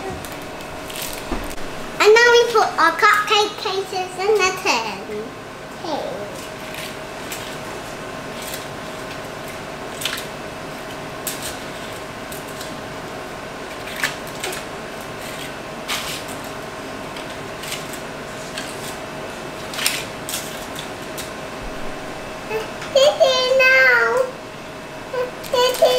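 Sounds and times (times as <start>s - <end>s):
steady background hum: 0.0s - 25.9s.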